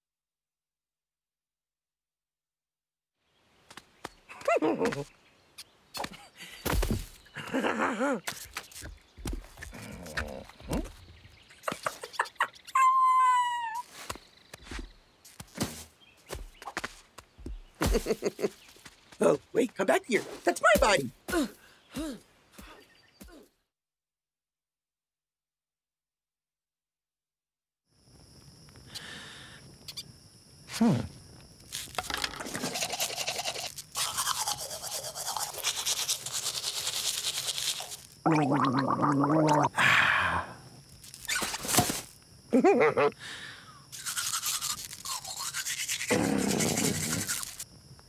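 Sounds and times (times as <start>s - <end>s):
toothbrush scrubbing teeth: 32.4s - 38.1s, 43.9s - 47.6s
voice-like sounds: 38.2s - 40.6s.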